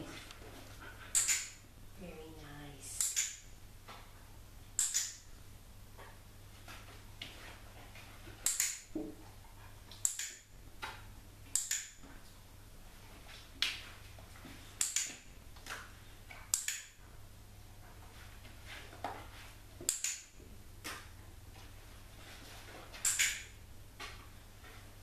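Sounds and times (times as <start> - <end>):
training clicker clicks: 1.2 - 1.5, 3.0 - 3.5, 4.8 - 5.2, 11.6 - 12.0, 14.8 - 15.2, 16.5 - 16.9, 23.0 - 23.5.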